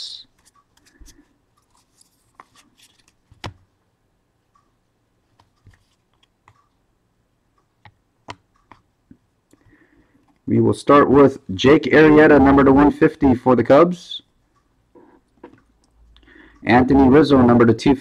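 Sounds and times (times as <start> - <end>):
trading cards and packaging handled: 0.3 - 3.6.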